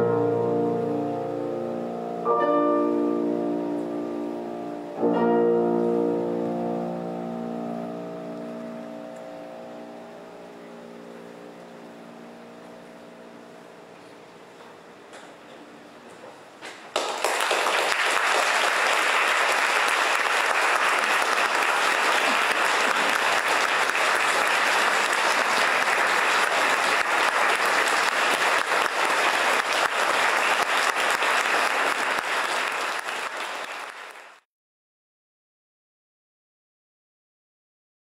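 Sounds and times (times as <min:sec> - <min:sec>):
audience applauding: 0:16.6 - 0:34.4.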